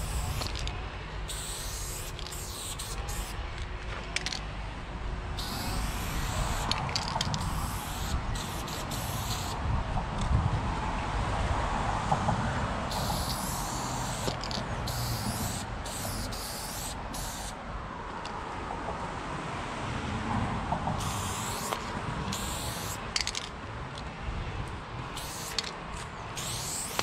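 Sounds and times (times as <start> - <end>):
spray paint can hissing: 0.0 - 0.7, 1.3 - 3.4, 5.4 - 9.6, 12.9 - 17.6, 21.0 - 23.5, 25.1 - 27.0
steady low rumble: 0.0 - 17.8.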